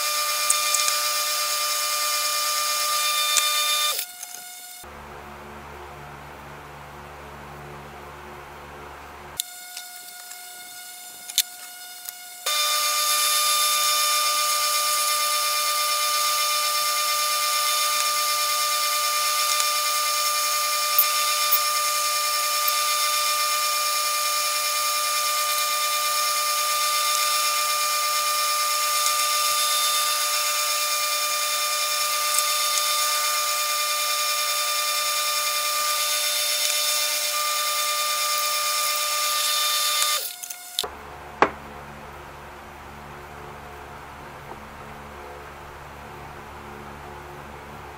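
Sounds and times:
drill bit boring acrylic: 0:00.0 - 0:04.8, 0:09.4 - 0:40.9
lathe whining: 0:00.0 - 0:04.8, 0:09.4 - 0:40.9.

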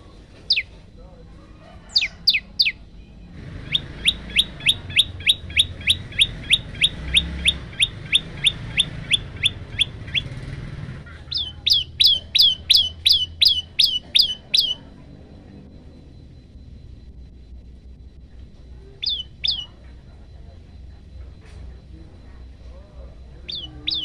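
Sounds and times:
bird calling sharp clear notes: 0:11.1 - 0:14.8, 0:19.0 - 0:19.7, 0:23.5 - 0:24.0.

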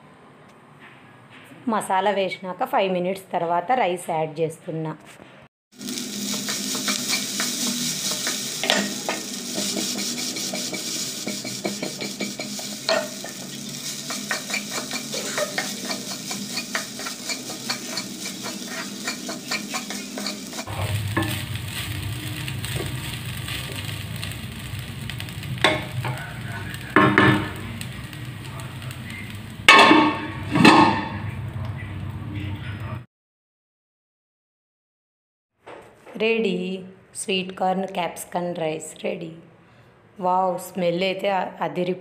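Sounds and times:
frying sizzle: 0:05.7 - 0:32.3
spatula scraping pan: 0:05.8 - 0:24.3.

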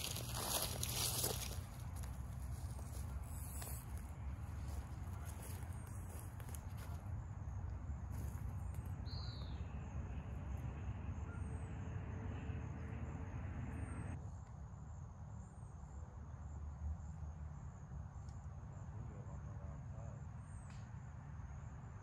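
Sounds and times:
footsteps rustling through undergrowth: 0:00.0 - 0:07.0
low rumble: 0:07.8 - 0:14.2
small birds chirping: 0:08.2 - 0:11.7.

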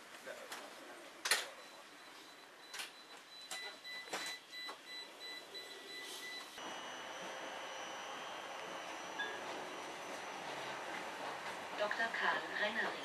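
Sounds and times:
tram motor whine: 0:06.6 - 0:13.0
tram running noise: 0:06.6 - 0:13.0.

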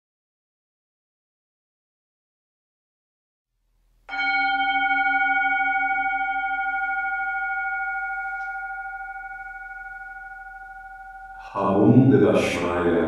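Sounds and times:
singing bowl ringing: 0:04.1 - 0:12.6.

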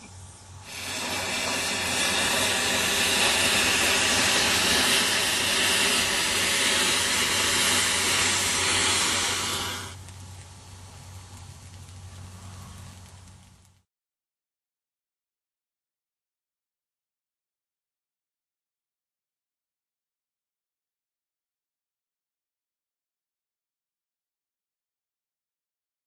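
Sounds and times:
faint hiss of burning matches: 0:00.0 - 0:13.9
matches igniting with hiss: 0:00.0 - 0:13.9.

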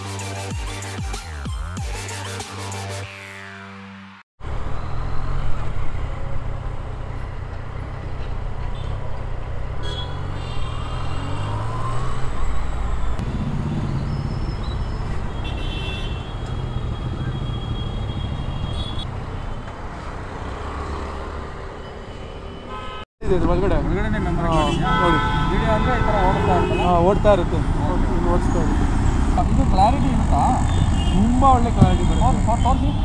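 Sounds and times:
traffic noise: 0:04.4 - 0:33.0
wind: 0:04.4 - 0:33.0
vehicle horns: 0:09.8 - 0:11.4, 0:13.2 - 0:19.1, 0:22.4 - 0:23.1, 0:24.4 - 0:27.7, 0:28.3 - 0:33.0.

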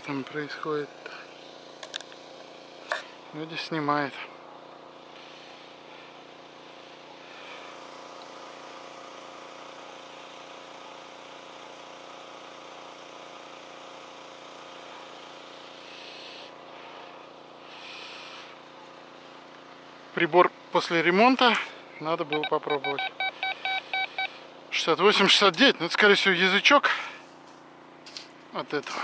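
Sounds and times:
engine droning: 0:00.0 - 0:29.0
short hissing noises: 0:15.7 - 0:18.7.

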